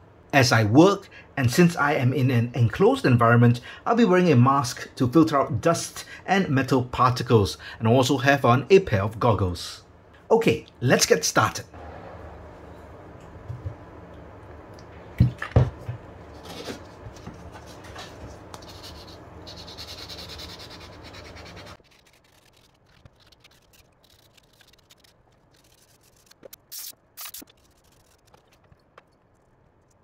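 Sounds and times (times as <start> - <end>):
short hissing bursts: 26.7 - 27.5.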